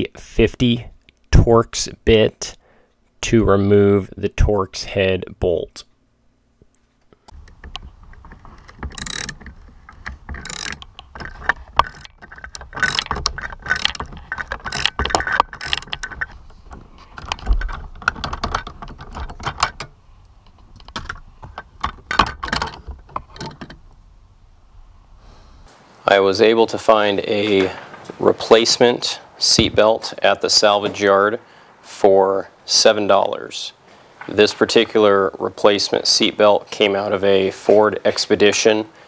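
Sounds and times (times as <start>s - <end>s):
ratchet wrench clicking: 8.9s - 9.5s, 10.4s - 10.8s, 11.8s - 16.2s.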